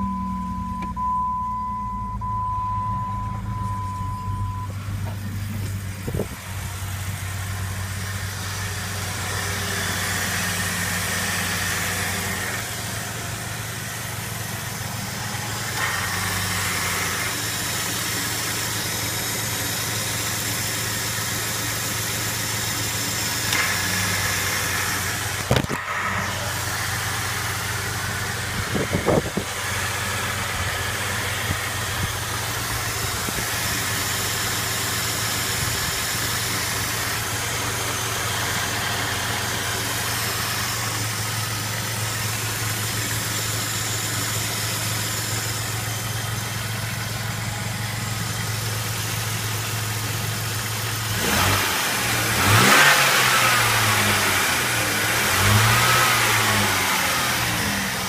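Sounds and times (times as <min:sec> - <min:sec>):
car engine idling: 0:00.0 - 0:58.0.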